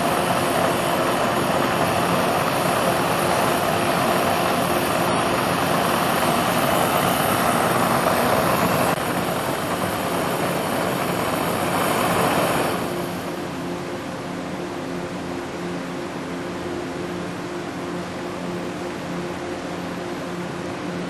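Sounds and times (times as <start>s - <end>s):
gas burner flame rushing: 0.0s - 13.4s.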